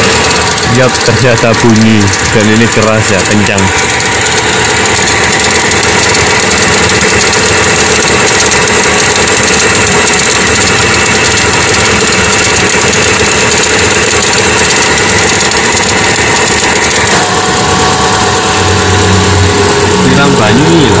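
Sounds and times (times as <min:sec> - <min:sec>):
car engine idling: 0:00.0 - 0:21.0
ticking from engine bay: 0:00.0 - 0:21.0.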